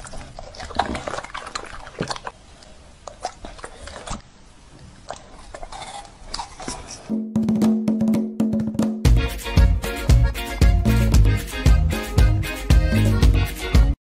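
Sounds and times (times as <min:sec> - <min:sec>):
dog chewing and smacking: 0:00.0 - 0:07.0.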